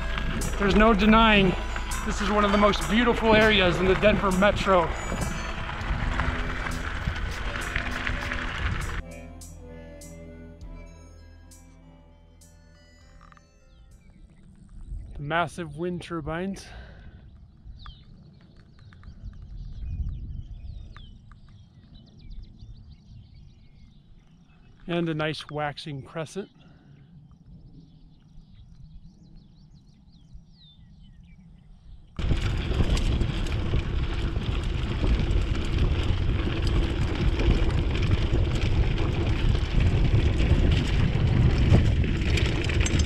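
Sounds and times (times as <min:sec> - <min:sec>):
bike rattles and knocks: 0:00.0 - 0:09.0, 0:32.2 - 0:43.0
wind rumbling on microphone: 0:00.0 - 0:09.0, 0:13.7 - 0:43.0.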